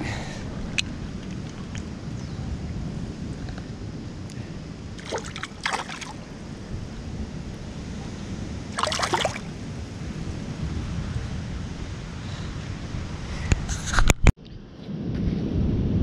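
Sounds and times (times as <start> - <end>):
water splashing in tide pool: 0.6 - 2.0, 5.0 - 6.4, 8.0 - 9.7.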